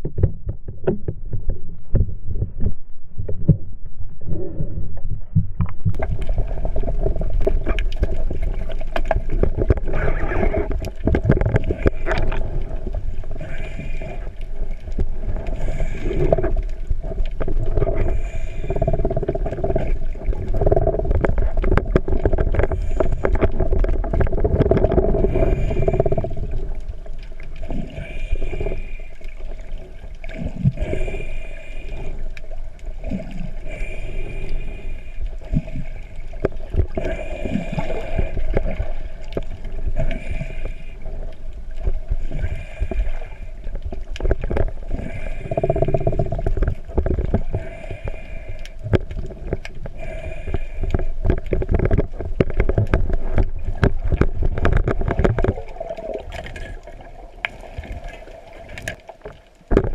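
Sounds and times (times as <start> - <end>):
small underwater knocks: 0.0 - 4.0, 4.8 - 10.0, 17.3 - 26.4, 50.8 - 58.0, 58.7 - 59.9
underwater surge rumble and gurgle: 0.0 - 59.9.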